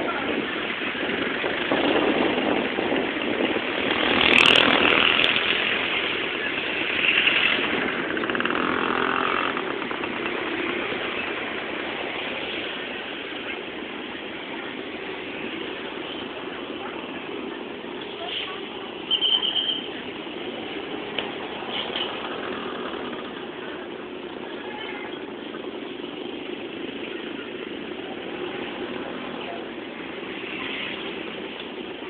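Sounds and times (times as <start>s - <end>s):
vehicle engines passing: 0.0s - 32.0s.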